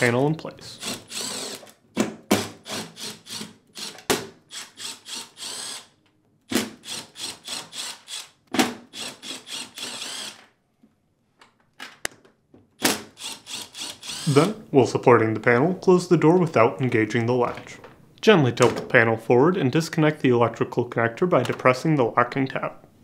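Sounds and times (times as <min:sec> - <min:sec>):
cordless drill motor whirring: 0:00.8 - 0:01.7, 0:04.5 - 0:05.9, 0:09.0 - 0:10.4, 0:13.2 - 0:14.4.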